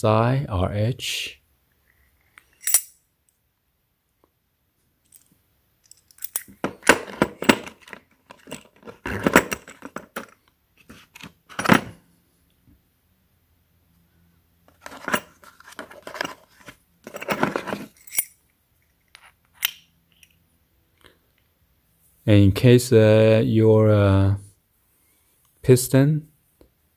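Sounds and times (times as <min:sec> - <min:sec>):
metal tool parts clinking: 0:02.5 - 0:03.0, 0:05.1 - 0:10.4, 0:14.8 - 0:18.4.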